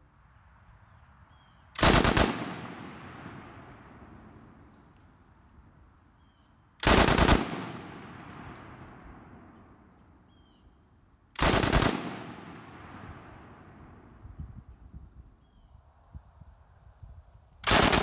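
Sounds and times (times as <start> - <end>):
machine gun bursts: 1.8 - 2.6, 6.8 - 7.8, 11.4 - 12.3, 17.6 - 18.0
gunfire echo: 1.8 - 4.2, 6.8 - 9.9, 11.4 - 13.9.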